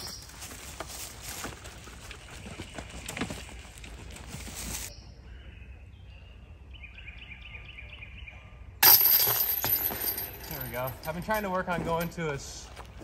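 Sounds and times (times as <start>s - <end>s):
rustling through undergrowth: 0.0s - 5.0s
bird chirping: 4.9s - 8.8s.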